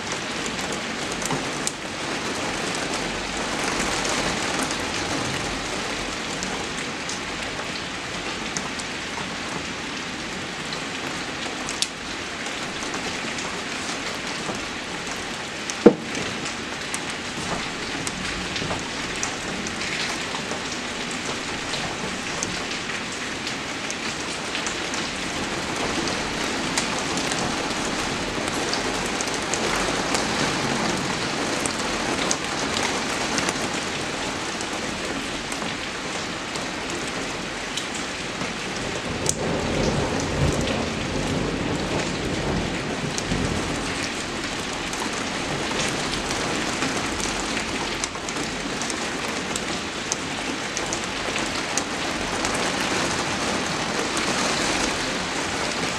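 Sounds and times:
rain falling: 0.0 - 55.9.

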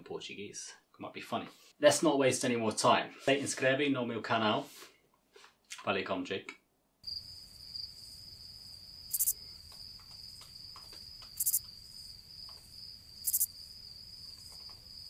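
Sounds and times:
crickets chirping: 7.0 - 15.0.

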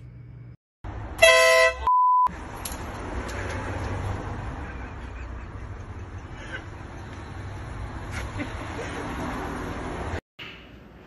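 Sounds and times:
outdoor background noise: 0.0 - 11.0
air horn blast: 1.2 - 1.9
flat beep tone: 1.8 - 2.3.

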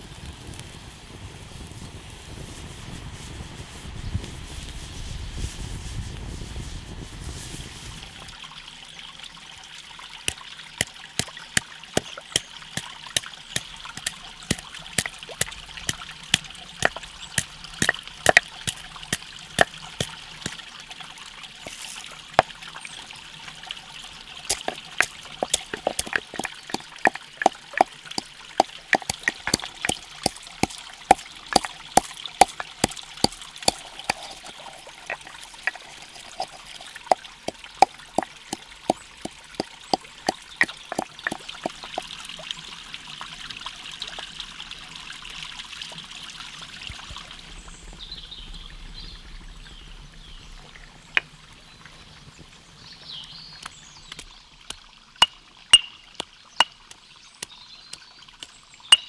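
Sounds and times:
stream trickling: 7.2 - 59.0
spices pounded in wooden mortar: 10.8 - 20.6, 24.5 - 42.1, 55.2 - 56.0.

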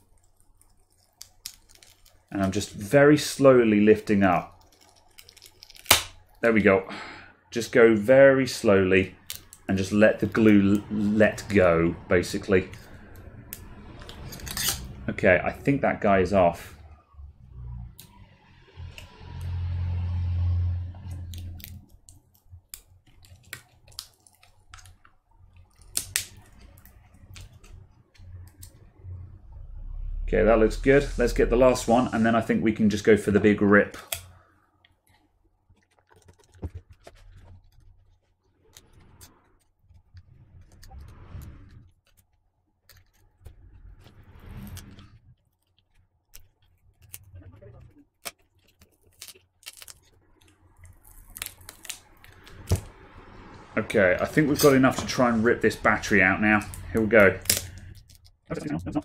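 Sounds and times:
low hum: 8.6 - 22.0, 25.4 - 33.8, 50.4 - 59.0.

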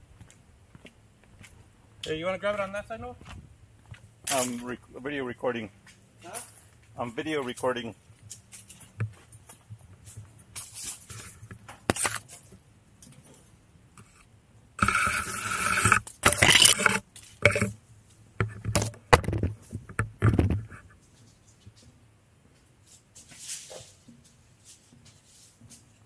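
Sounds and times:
camera handling scraping and rubbing: 10.6 - 12.3, 14.0 - 14.2, 14.8 - 17.8.

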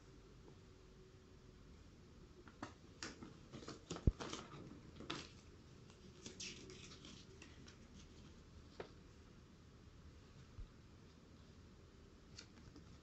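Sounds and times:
paper rustling and crinkling: 2.5 - 9.0.

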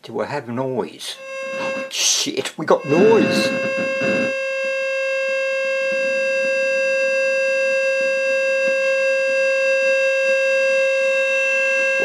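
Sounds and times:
steady test tone through speaker: 1.1 - 12.0
faint scratchy crackle: 2.9 - 4.3.

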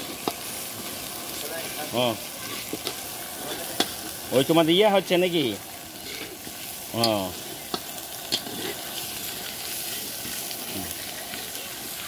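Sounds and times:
spice paste sizzling in hot oil: 0.0 - 12.0
metal spatula scraping pan: 2.4 - 4.0, 6.0 - 9.1.

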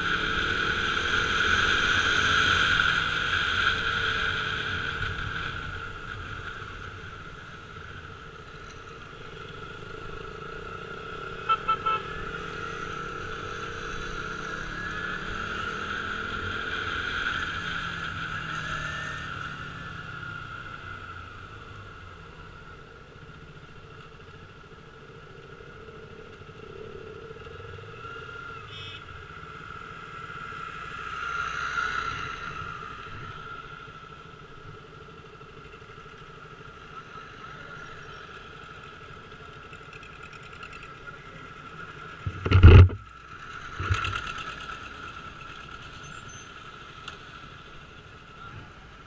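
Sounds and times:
road noise: 0.0 - 49.0
motorcycle engine running: 32.5 - 49.0.

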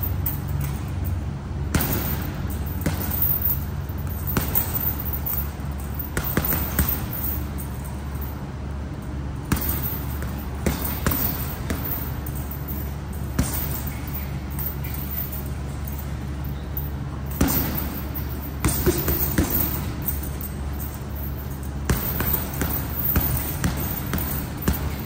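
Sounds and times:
steady low hum: 0.0 - 25.0
punches on heavy bag: 1.7 - 5.1, 6.0 - 7.4, 9.4 - 12.1, 13.3 - 14.7, 17.3 - 20.2, 21.8 - 25.0.

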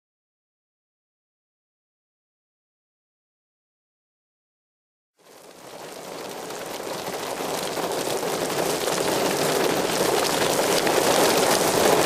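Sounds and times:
rain: 5.2 - 12.0.

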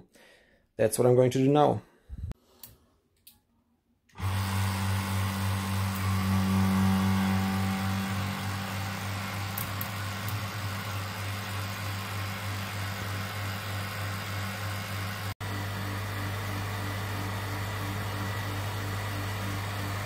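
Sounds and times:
vacuum pump humming: 4.1 - 20.0.

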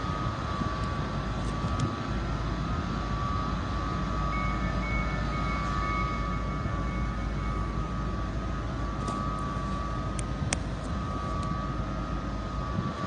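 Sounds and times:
high train squeal: 0.0 - 10.2
train rumble with whine: 0.0 - 13.0.

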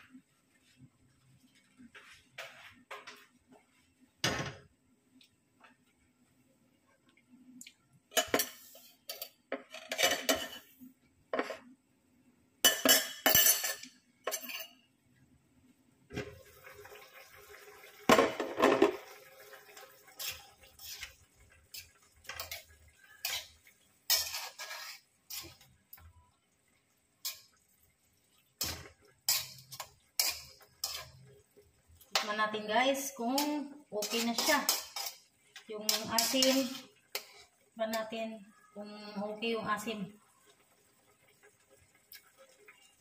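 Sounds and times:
metal spoon scraping wok: 20.2 - 25.7, 28.6 - 31.2, 33.3 - 38.0.

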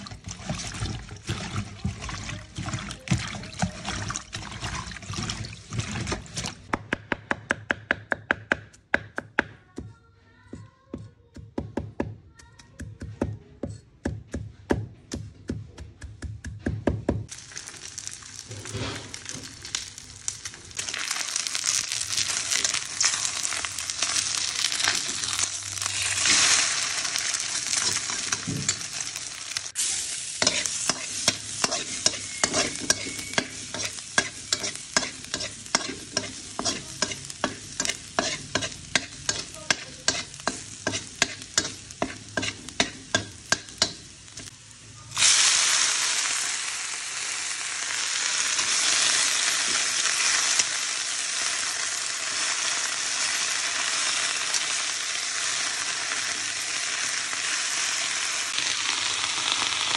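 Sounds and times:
greens sizzling in hot pan: 0.0 - 6.7, 17.2 - 59.9
garlic sizzling in a frying pan: 0.0 - 6.8, 17.3 - 59.9
metal spatula tapping a pan: 30.4 - 44.5.

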